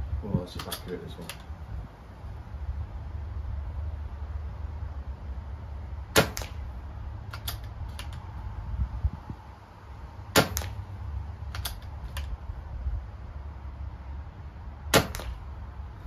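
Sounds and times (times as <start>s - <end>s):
air rifle shot crack: 6.1s - 6.7s, 10.3s - 10.8s, 14.9s - 15.4s
rifle cocking clicks: 11.5s - 12.4s.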